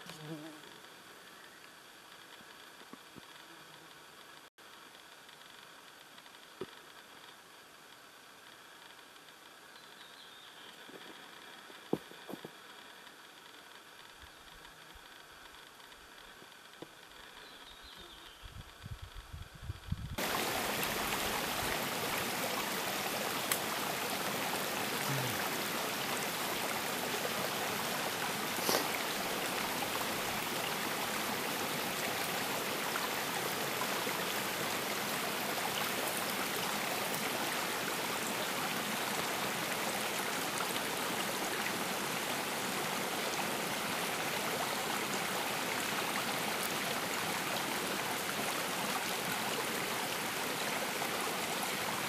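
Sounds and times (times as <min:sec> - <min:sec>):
forest stream flowing: 0:20.2 - 0:52.0.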